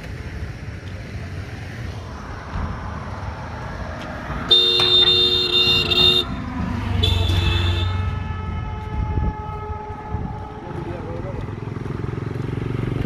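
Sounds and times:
traffic rumble: 0:00.0 - 0:13.0
vehicle horn: 0:04.4 - 0:10.3.

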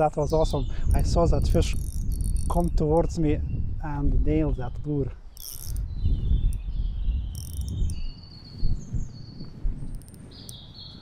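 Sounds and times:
low rumble of rod handling: 0:01.0 - 0:03.2
fishing reel drag buzzing: 0:01.5 - 0:02.8, 0:05.3 - 0:05.9, 0:07.3 - 0:08.0, 0:09.9 - 0:10.6.

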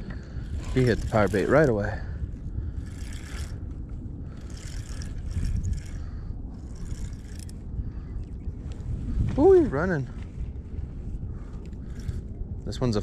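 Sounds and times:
wind rumble on microphone: 0:00.0 - 0:13.0
spinning reel cranking: 0:00.5 - 0:02.1, 0:02.8 - 0:03.7, 0:04.3 - 0:07.6.

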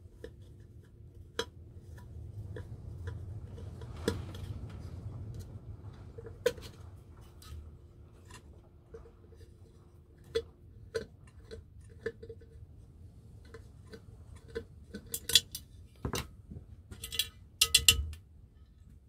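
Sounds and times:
low rumble: 0:01.7 - 0:09.6.

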